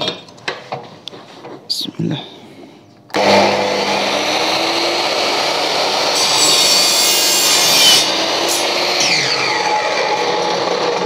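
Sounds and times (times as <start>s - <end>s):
miter saw motor running: 3.2s - 11.0s
saw blade cutting aluminium: 3.2s - 11.0s.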